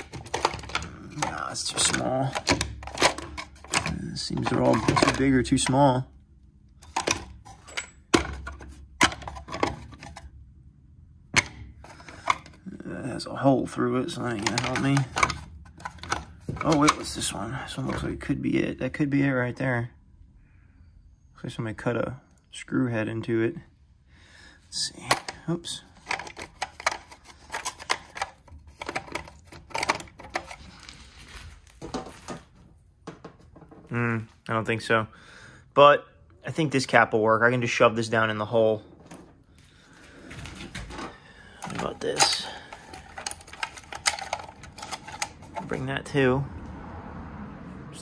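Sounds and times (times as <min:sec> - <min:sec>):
brass fittings clicking and rattling: 0:00.0 - 0:05.9, 0:14.1 - 0:18.0, 0:25.0 - 0:31.0, 0:40.4 - 0:45.9
metal fittings clinking: 0:06.8 - 0:10.2, 0:14.2 - 0:17.2, 0:41.6 - 0:45.9.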